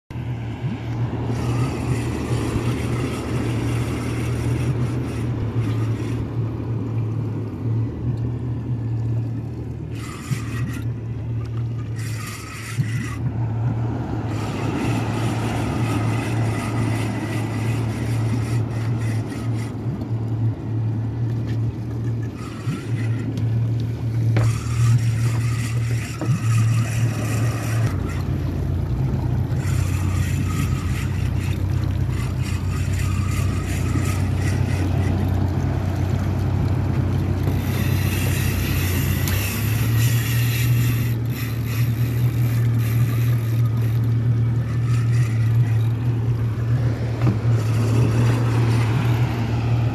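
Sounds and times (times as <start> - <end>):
outboard motor drone: 0.0 - 49.9
wind: 0.0 - 49.9
water rushing: 0.1 - 49.9.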